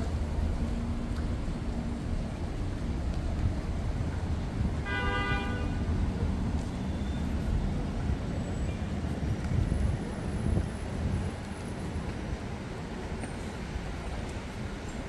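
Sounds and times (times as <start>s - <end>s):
street traffic rumble: 0.0s - 15.0s
vehicle horn beep: 4.8s - 5.9s.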